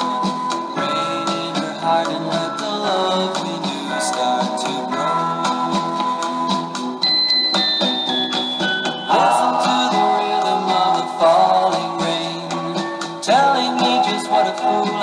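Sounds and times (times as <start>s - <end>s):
instrumental music: 0.0s - 15.0s
sliding melody line: 0.0s - 15.0s
high bell-like melody: 4.2s - 12.9s.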